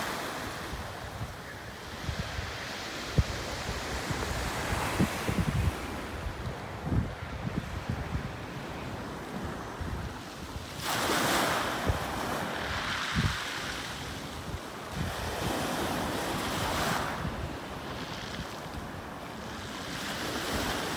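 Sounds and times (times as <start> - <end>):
wind buffeting microphone: 0.6 - 19.0
waves breaking on pebble beach: 10.5 - 18.6.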